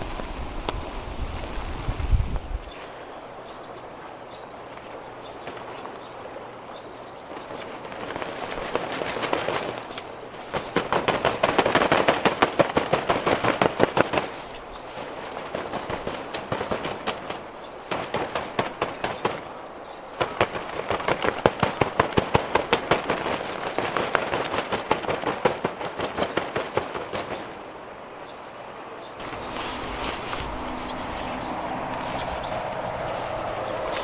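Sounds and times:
rain: 0:00.0 - 0:06.4
tent fabric flapping in wind: 0:00.0 - 0:34.0.

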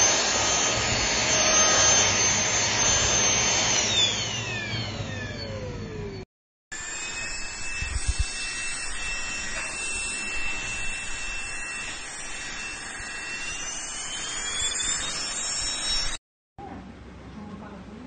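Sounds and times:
vacuum motor whining: 0:00.0 - 0:06.2, 0:06.8 - 0:16.2.

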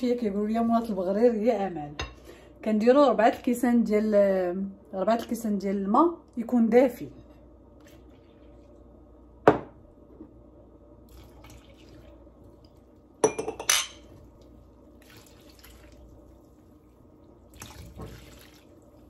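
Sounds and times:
water pouring: 0:11.1 - 0:12.9, 0:14.2 - 0:19.0
glass clinking: 0:13.2 - 0:14.1.

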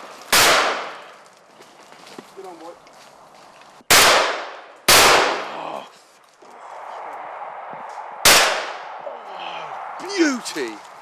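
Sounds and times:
shotgun shots with echo: 0:00.3 - 0:01.0, 0:03.9 - 0:05.5, 0:08.2 - 0:08.8.

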